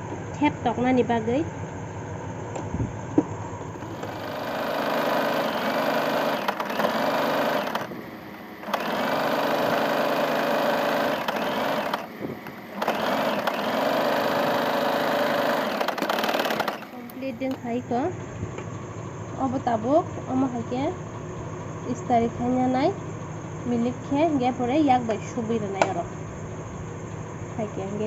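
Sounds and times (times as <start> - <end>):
sewing machine stitching: 3.8 - 8.0, 8.6 - 17.7.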